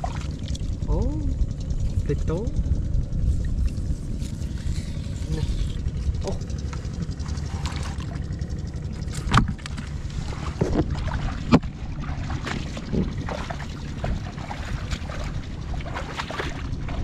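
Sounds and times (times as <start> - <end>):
water splashes: 0.0 - 1.0, 3.4 - 17.0
wind rumble on microphone: 0.0 - 17.0
footsteps squelching through mud: 9.2 - 17.0.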